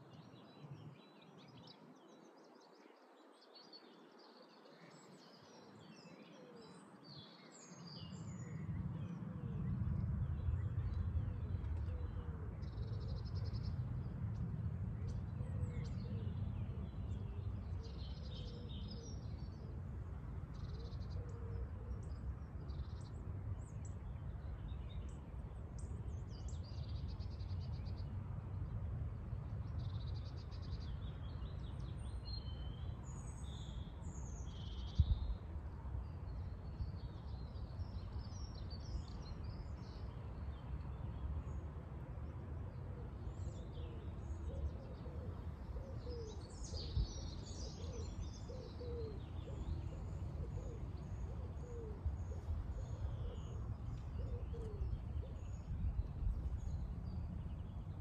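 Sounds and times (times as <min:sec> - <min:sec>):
low steady rumble: 0:08.6 - 0:21.0.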